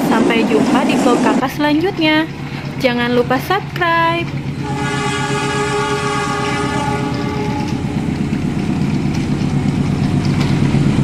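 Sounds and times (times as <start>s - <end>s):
wheels rattling on track: 0.0s - 11.0s
electronic train horn: 4.6s - 8.0s.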